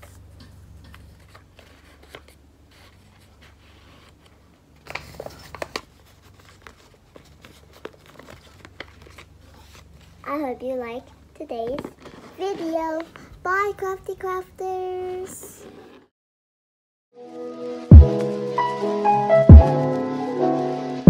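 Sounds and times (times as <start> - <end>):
paper bag rustling: 0.0 - 10.4
crisp paper crackles: 1.0 - 10.5, 11.8 - 13.3.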